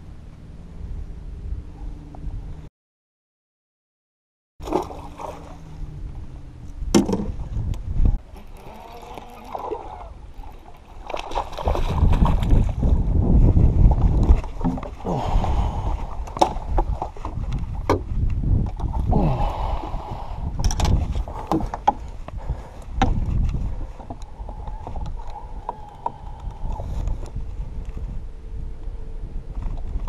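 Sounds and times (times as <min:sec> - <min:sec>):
wind rumble on microphone: 0:00.0 - 0:02.7, 0:05.0 - 0:30.0
water sloshing and splashing: 0:04.6 - 0:05.8, 0:08.2 - 0:19.1.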